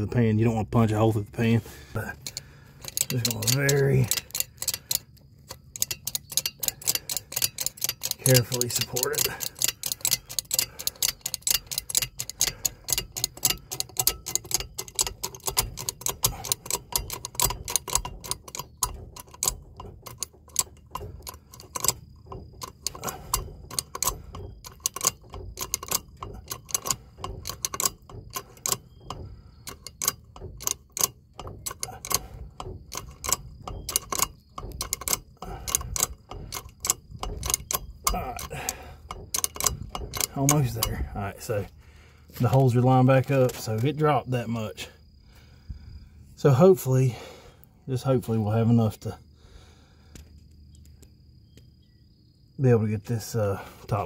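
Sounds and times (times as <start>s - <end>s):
hydraulic jack pumping clicks: 2.0s - 43.9s.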